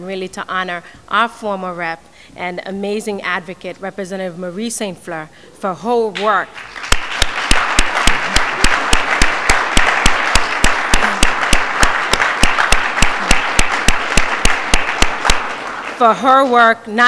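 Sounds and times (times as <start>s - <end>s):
audience applauding: 6.5s - 16.0s
person clapping close by: 6.6s - 16.0s.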